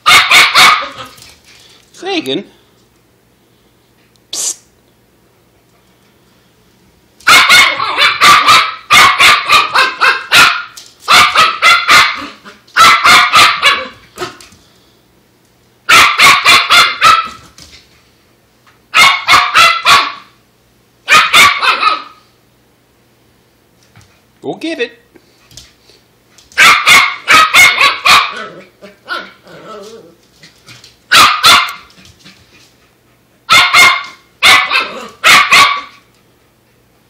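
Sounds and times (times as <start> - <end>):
puppy barking: 0.0 - 1.2, 7.2 - 14.4, 15.9 - 17.5, 18.9 - 20.4, 21.0 - 22.2, 26.6 - 29.9, 31.1 - 31.9, 33.5 - 36.1.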